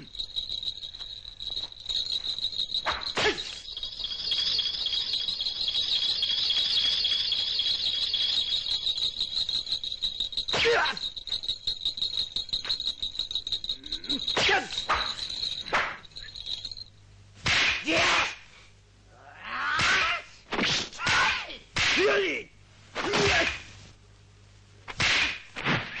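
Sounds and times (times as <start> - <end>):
small bells jingling: 0.0 - 17.1.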